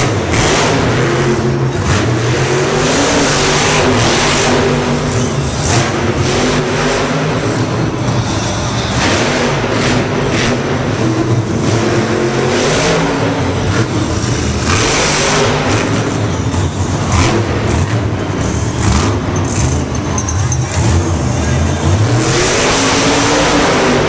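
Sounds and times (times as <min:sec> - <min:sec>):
monster truck engine revving: 0:00.0 - 0:24.0.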